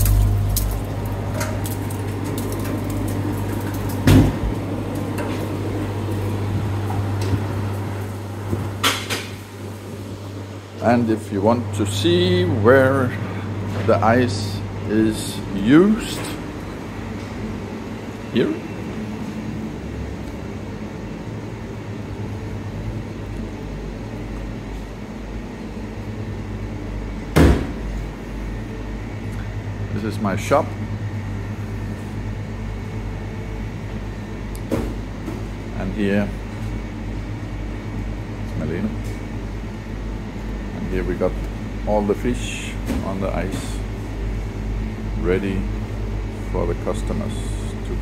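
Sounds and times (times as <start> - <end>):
ice machine humming: 0.0 - 27.3.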